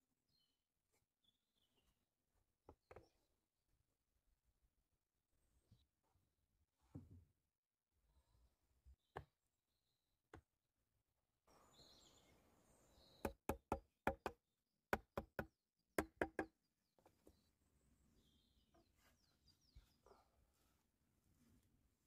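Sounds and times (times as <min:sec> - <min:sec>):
hatchet knocking wooden poles: 0:13.2 - 0:16.6.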